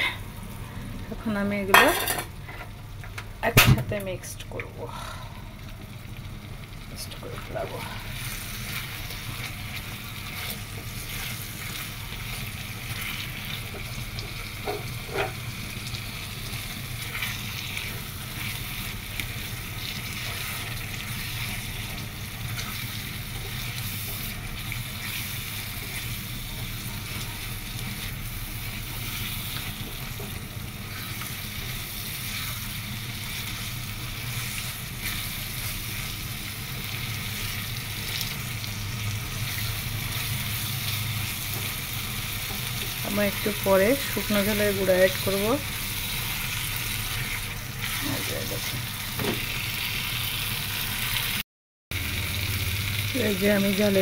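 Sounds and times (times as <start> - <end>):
onions sizzling in a pan: 0.0 - 54.0
spatula scraping a pan: 14.6 - 15.4.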